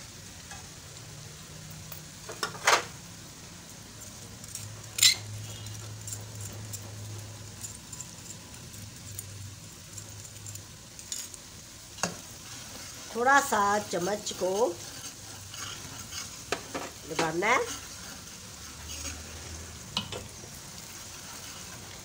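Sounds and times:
onions sizzling in oil: 0.0s - 22.0s
spoon tapping pan: 16.1s - 17.4s, 19.9s - 20.4s.

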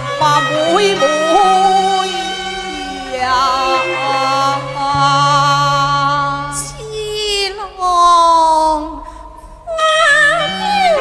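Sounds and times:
instrumental accompaniment: 0.0s - 7.8s
woman singing opera: 0.0s - 9.1s, 9.7s - 11.0s.

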